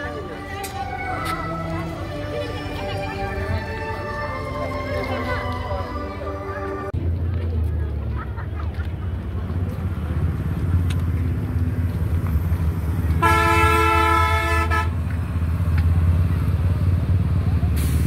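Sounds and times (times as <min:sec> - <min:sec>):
road traffic rumble: 0:00.0 - 0:18.0
vehicle horn: 0:13.2 - 0:15.0.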